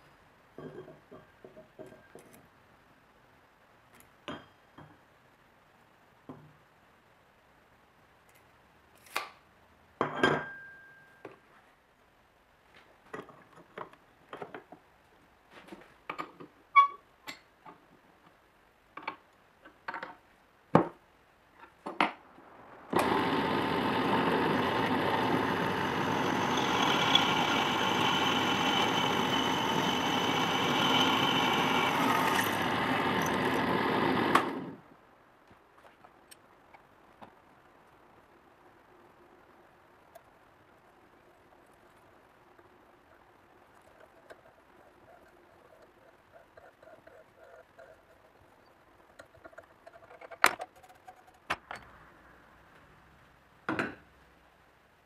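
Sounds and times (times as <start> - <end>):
drill press drilling steel: 23.0 - 34.8
steel parts clicking and knocking: 43.8 - 51.9.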